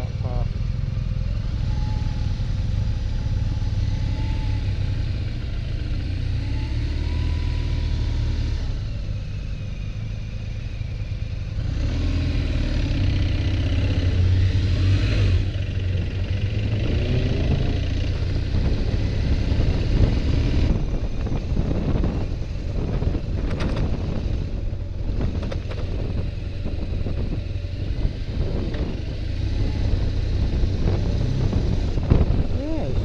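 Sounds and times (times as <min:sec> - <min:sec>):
motorcycle engine running: 0:08.3 - 0:33.0
wind rushing: 0:18.5 - 0:33.0.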